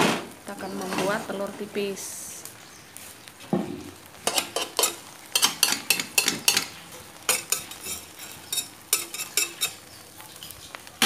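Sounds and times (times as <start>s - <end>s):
omelette sizzling: 0.3s - 11.0s
utensil scraping a frying pan: 0.7s - 1.5s, 4.2s - 10.8s.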